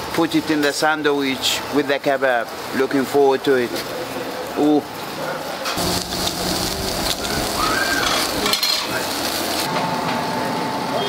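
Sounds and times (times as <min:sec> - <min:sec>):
steady noisy hiss: 0:00.0 - 0:11.0
metal skewers clinking: 0:08.0 - 0:09.1.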